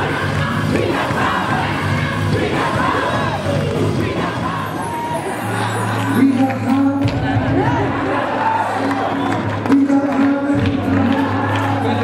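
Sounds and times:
repeated bass notes: 0.0s - 8.2s
audience cheering and shouting: 0.0s - 12.0s.

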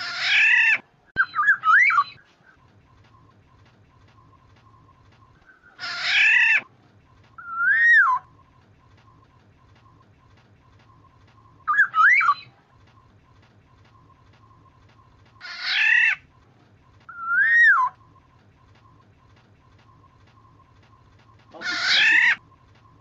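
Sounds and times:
bird harsh raspy call: 0.0s - 2.2s, 5.5s - 6.7s, 15.4s - 16.2s, 21.5s - 22.4s
bird fluting whistle: 7.4s - 8.3s, 10.8s - 12.6s, 17.1s - 18.1s.

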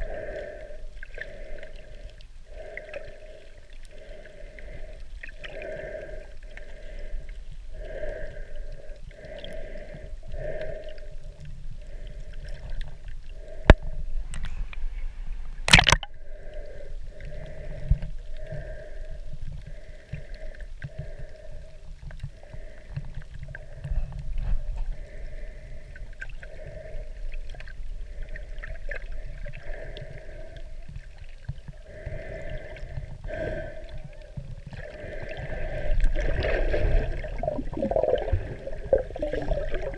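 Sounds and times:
underwater rumble and sloshing: 0.0s - 39.9s.

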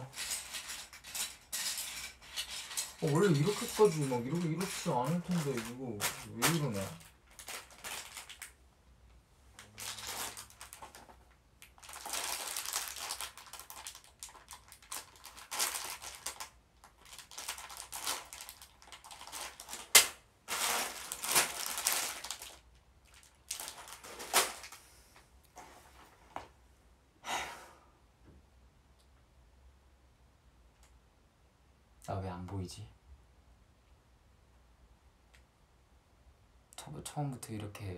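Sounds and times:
paper and packaging rustling: 0.0s - 8.6s, 9.6s - 24.8s.

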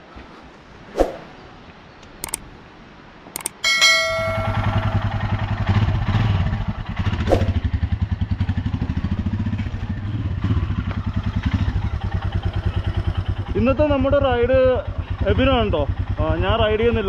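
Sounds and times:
motorcycle engine running: 4.1s - 17.0s.

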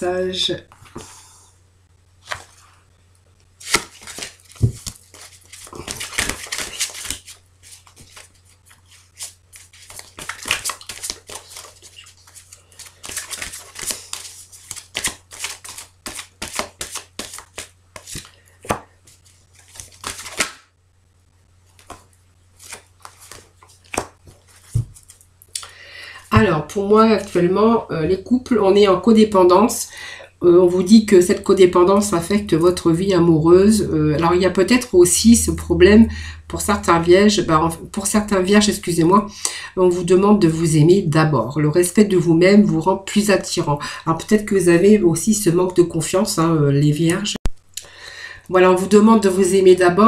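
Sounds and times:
cards shuffled by hand: 2.2s - 2.7s, 3.5s - 20.7s, 21.6s - 25.3s.

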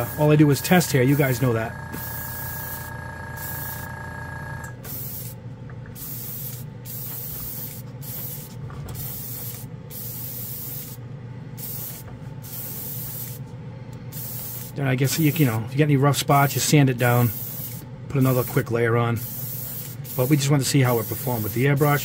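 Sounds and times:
airbrush spraying hissing bursts: 0.0s - 3.9s, 4.9s - 5.4s, 6.0s - 11.0s, 11.6s - 13.4s, 14.1s - 15.5s, 17.1s - 18.6s, 19.2s - 22.0s
air compressor humming: 0.0s - 15.7s, 16.4s - 22.0s.

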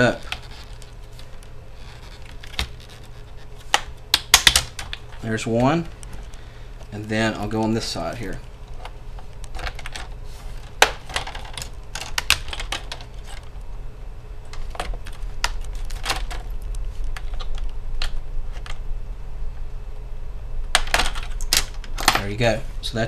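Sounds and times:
plastic clips snapping: 3.7s - 5.0s.

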